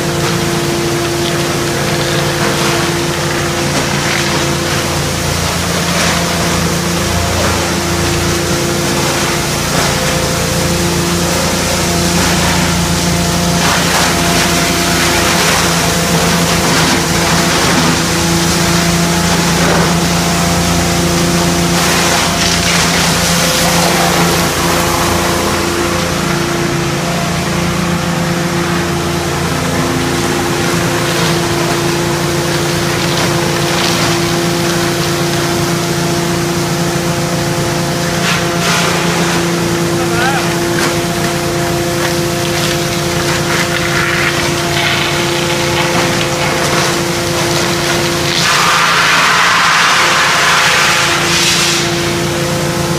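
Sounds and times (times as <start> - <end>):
wood crusher humming: 0.0 - 52.9.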